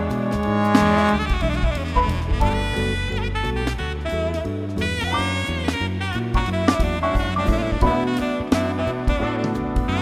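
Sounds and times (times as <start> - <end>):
drum kit with cymbal hits: 0.0 - 10.0
tenor saxophone melody: 0.0 - 10.0
walking bass line: 0.0 - 10.0.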